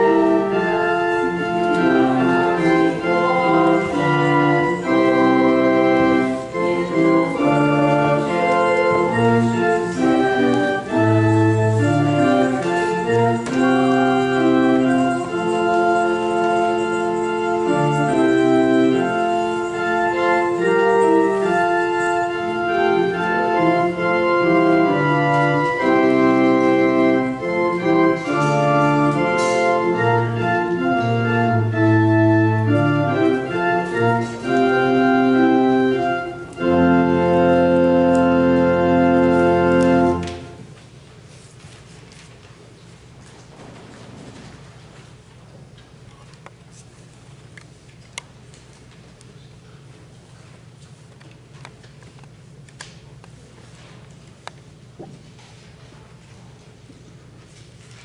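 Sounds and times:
church organ chords: 0:00.0 - 0:40.8.

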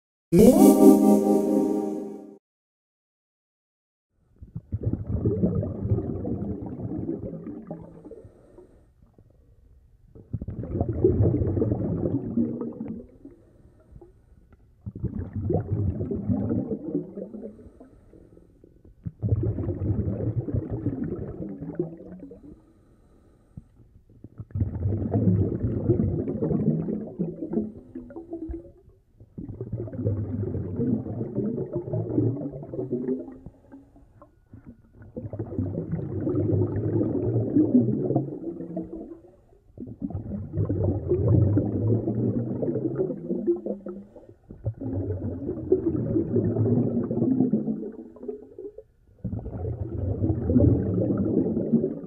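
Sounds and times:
diver exhaling gurgling bubbles: 0:04.6 - 0:08.5, 0:10.3 - 0:13.2, 0:14.8 - 0:18.0, 0:19.0 - 0:22.6, 0:24.3 - 0:33.7, 0:34.6 - 0:52.0.

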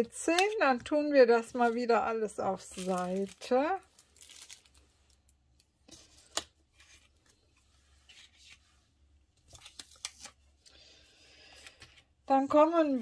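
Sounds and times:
paper and plastic rustling: 0:00.4 - 0:08.8.

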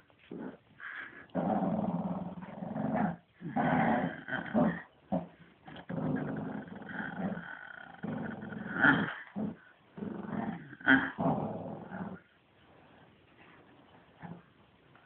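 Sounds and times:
dog play-growling: 0:00.2 - 0:12.3, 0:14.1 - 0:14.5.

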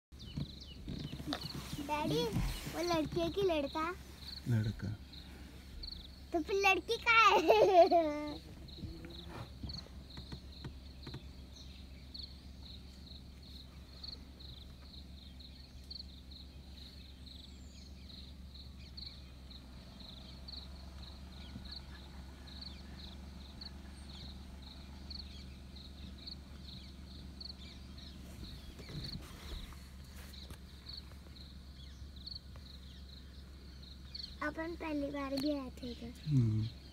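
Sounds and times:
insect chirping: 0:00.3 - 0:36.9.

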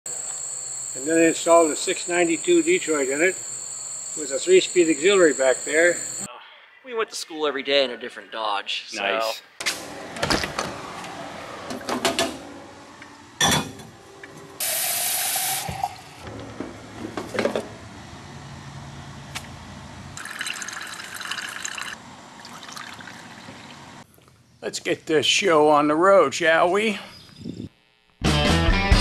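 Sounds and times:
coffee brewer hissing: 0:00.1 - 0:06.3, 0:14.6 - 0:16.2, 0:20.2 - 0:23.0
coffee poured into cup: 0:20.2 - 0:23.4
coffee trickling into carafe: 0:20.2 - 0:23.8.

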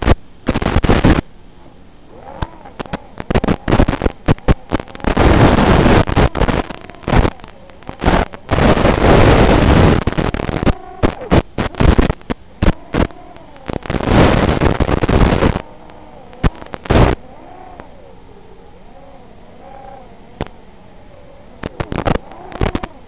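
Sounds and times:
sharp pops: 0:00.0 - 0:01.3, 0:02.3 - 0:17.2, 0:21.6 - 0:23.0
hissing video link static: 0:00.0 - 0:23.0.

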